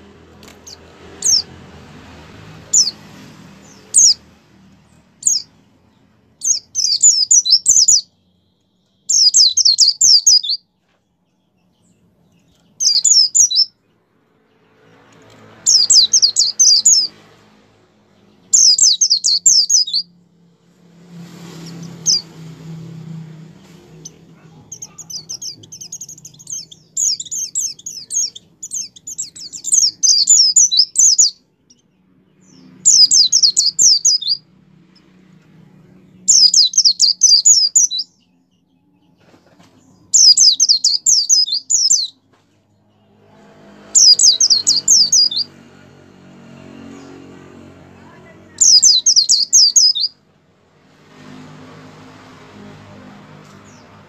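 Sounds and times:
bird twittering: 0.6 - 1.5, 3.6 - 4.2, 5.2 - 5.6, 6.4 - 10.6, 12.4 - 13.8, 15.7 - 17.1, 18.5 - 20.1, 24.0 - 34.5, 36.2 - 38.3, 40.1 - 42.2, 44.0 - 45.5, 48.6 - 50.2.

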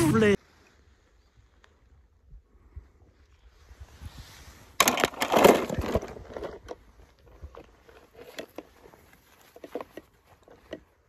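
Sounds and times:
footsteps through dry undergrowth: 6.8 - 11.0.

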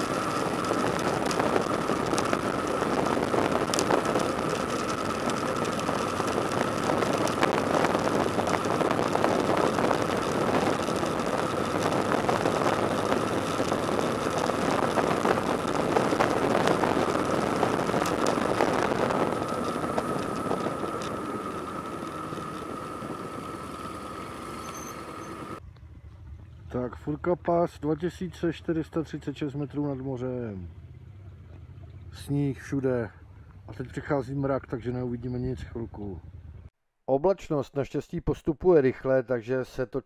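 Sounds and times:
steady high whine: 0.0 - 25.9
motorcycle engine running: 0.0 - 28.7, 30.6 - 32.5, 35.0 - 36.7
wind and road noise: 0.0 - 36.8.

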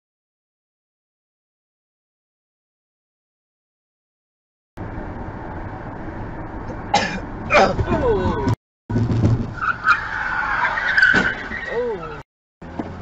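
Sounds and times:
car road noise on concrete: 4.8 - 13.0
person clearing throat: 6.9 - 8.1.

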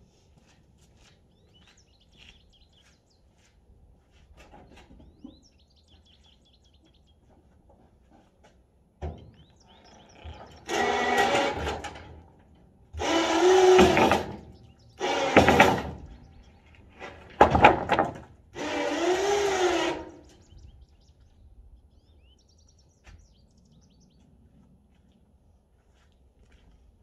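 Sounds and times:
hydraulic pump motor whining: 9.9 - 17.4, 18.5 - 20.4.

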